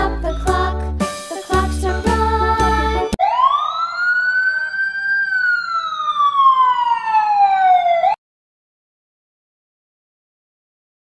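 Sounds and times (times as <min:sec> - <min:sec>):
siren wail: 0:03.2 - 0:08.2.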